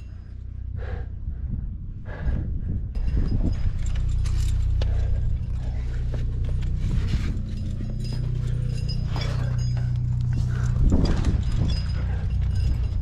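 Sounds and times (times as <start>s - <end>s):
steady low rumble: 0.0s - 13.0s
climbing gear clinking: 2.9s - 13.0s.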